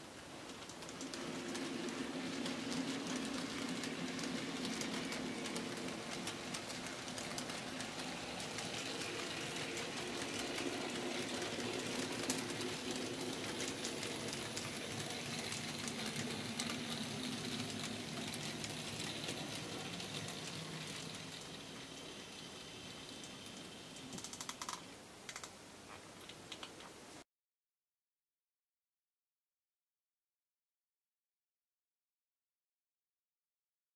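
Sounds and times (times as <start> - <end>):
model train wheels clicking: 0.0 - 25.6.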